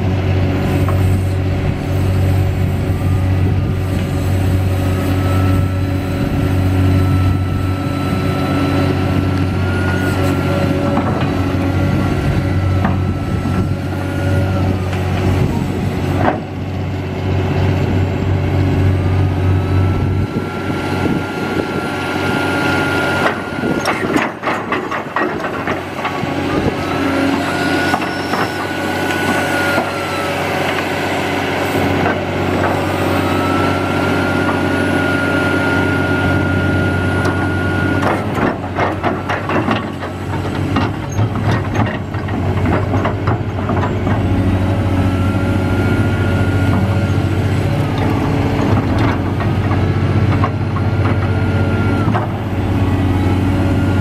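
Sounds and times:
diesel excavator engine: 0.0s - 54.0s
hydraulic whine: 0.0s - 54.0s
knocks and clanks: 23.2s - 26.8s, 38.0s - 44.3s.

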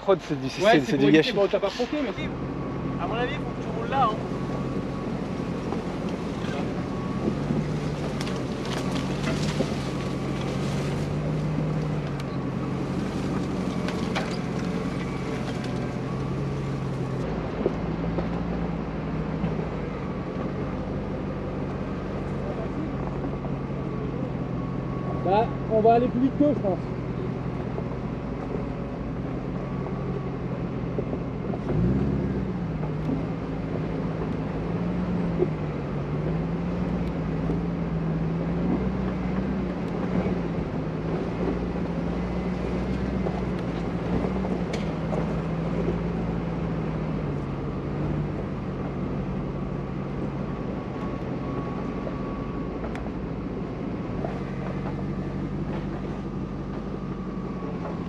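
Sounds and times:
truck engine running: 0.0s - 58.0s
tyre noise on dirt track: 0.0s - 58.0s.

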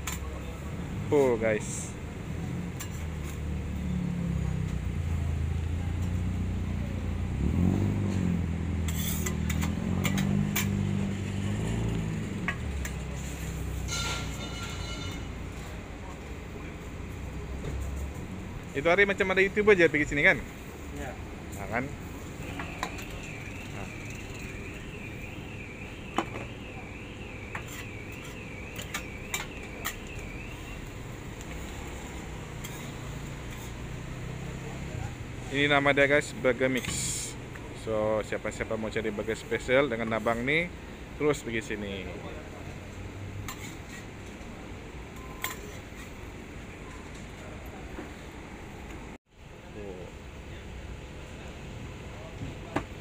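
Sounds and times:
metal spatulas scraping griddle: 8.9s - 10.8s, 32.6s - 33.8s.

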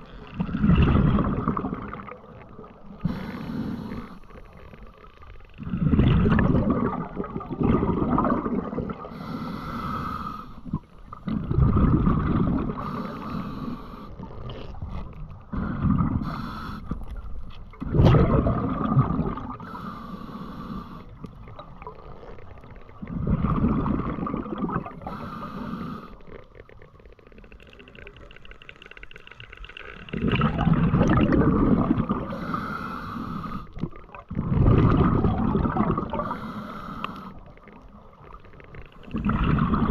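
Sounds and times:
breathing through a snorkel: 3.0s - 4.5s, 8.9s - 10.9s, 12.5s - 14.4s, 15.5s - 17.1s, 19.5s - 21.3s, 24.9s - 26.4s, 32.1s - 34.0s, 36.0s - 37.6s.

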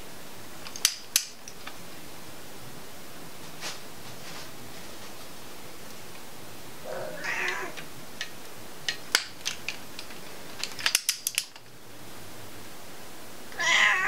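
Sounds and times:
cat meowing: 6.9s - 7.8s, 13.6s - 14.0s.

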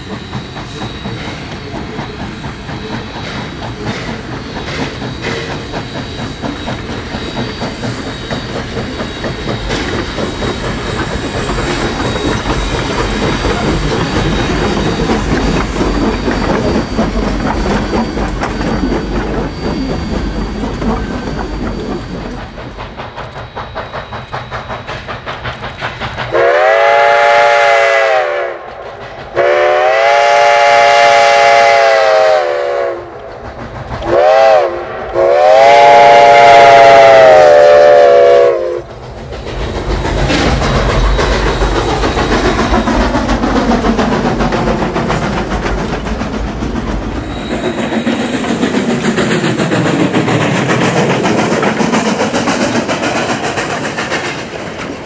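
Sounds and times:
steam locomotive chuffing: 0.0s - 55.0s
train wheels clattering over rail joints: 0.0s - 55.0s
steam whistle blasts: 26.3s - 28.6s, 29.4s - 33.2s, 34.1s - 38.8s.

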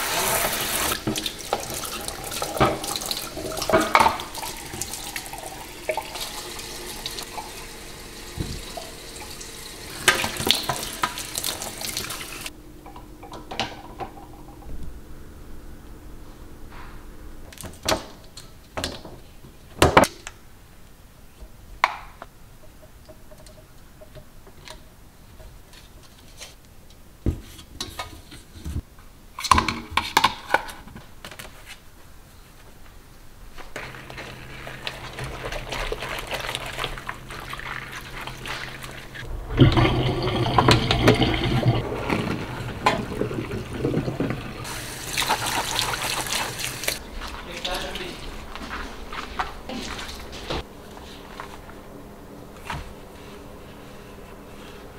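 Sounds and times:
water running into sink: 0.0s - 12.5s, 33.8s - 47.0s
water draining with splashing rush: 33.8s - 47.0s.

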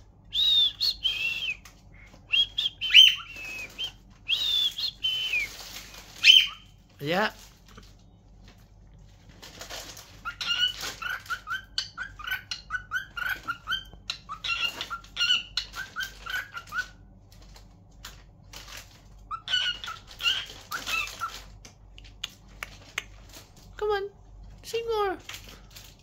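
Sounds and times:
cockatiel chirping: 0.6s - 6.7s, 10.1s - 17.0s, 19.3s - 21.5s.

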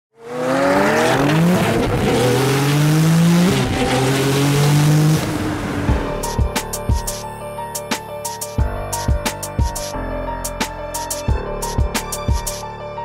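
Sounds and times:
car engine at full throttle: 0.1s - 6.4s
wind and road noise: 0.5s - 6.2s
music hits: 3.6s - 13.0s.

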